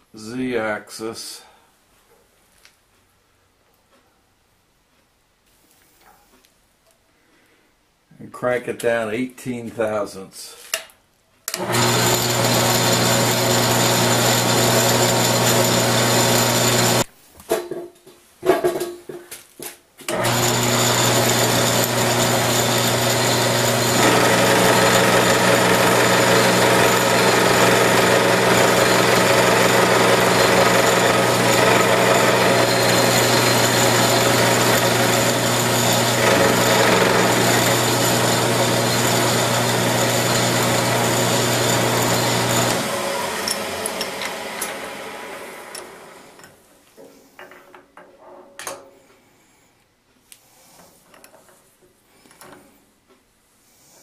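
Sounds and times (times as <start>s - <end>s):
milling machine hum: 11.6s - 17.0s, 20.1s - 46.4s.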